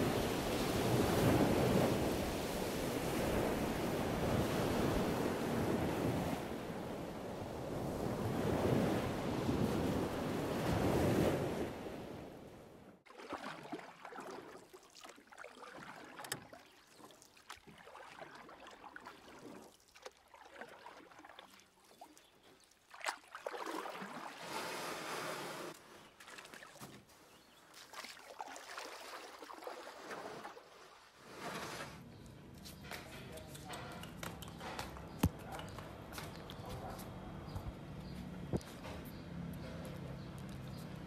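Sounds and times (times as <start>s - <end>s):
waves washing over shore: 0.0s - 12.2s
water sloshing and lapping: 13.0s - 32.0s.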